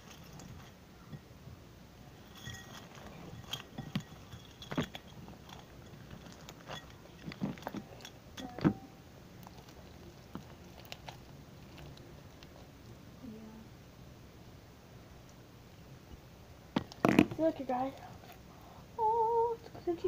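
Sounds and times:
hands handling small objects: 9.4s - 12.7s.

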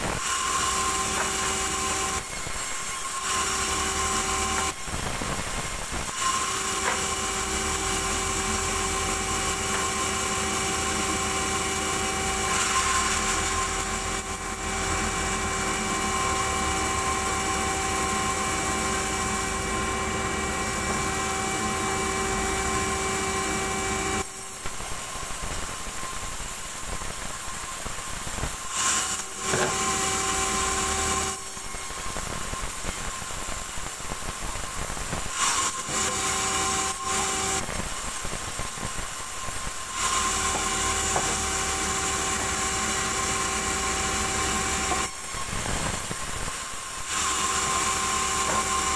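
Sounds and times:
band saw whine: 0.0s - 28.0s, 28.6s - 33.8s, 35.2s - 48.9s
saw blade rasping wood: 0.2s - 4.8s, 6.1s - 16.7s, 28.7s - 31.4s, 39.9s - 46.1s, 47.0s - 48.9s.

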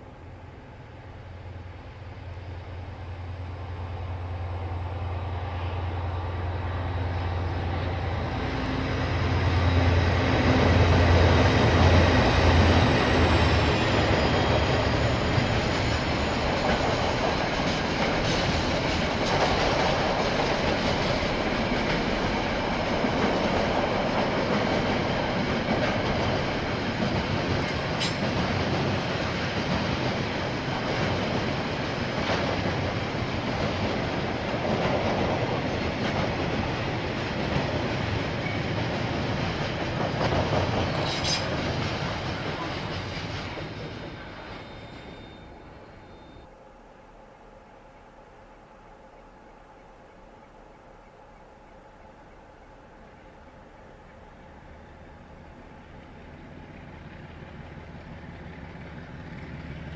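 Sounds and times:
train wheels rumbling and clattering: 0.0s - 46.5s, 53.0s - 59.9s
diesel locomotive engine drone: 0.0s - 59.9s
thin high whine: 44.2s - 55.0s.

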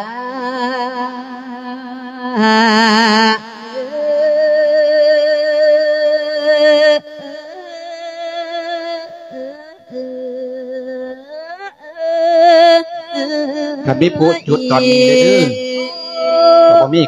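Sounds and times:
solo voice chanting: 13.2s - 17.0s.

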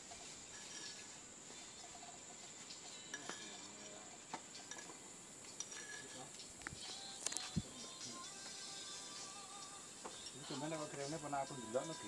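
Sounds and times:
metal spoon clinking in cups: 0.0s - 7.0s
faint high-pitched whine: 0.0s - 12.0s.

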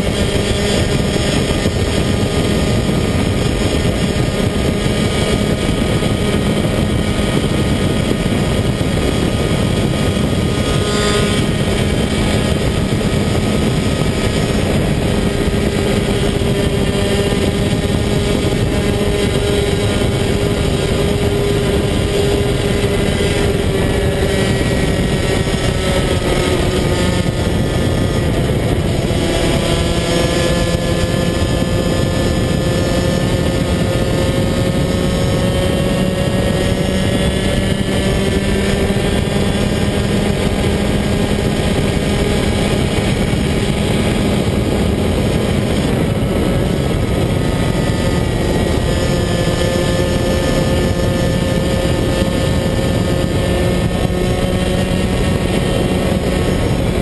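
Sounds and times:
kart engine at high revs: 0.0s - 57.0s.

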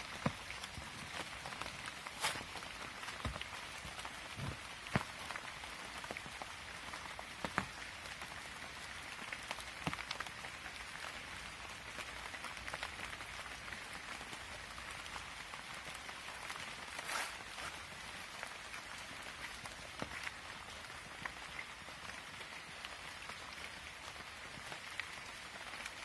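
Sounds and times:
light rain pattering on leaves: 0.0s - 26.0s.

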